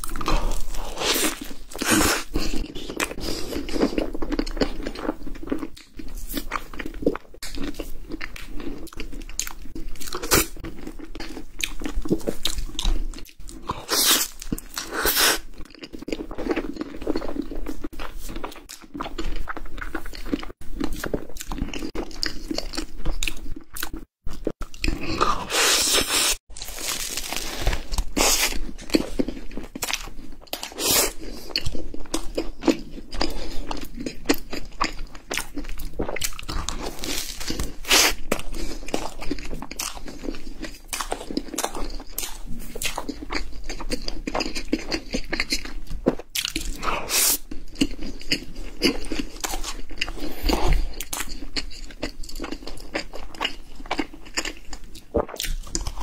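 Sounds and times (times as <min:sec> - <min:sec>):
chewing: 0:00.0 - 0:26.4, 0:27.8 - 0:56.0.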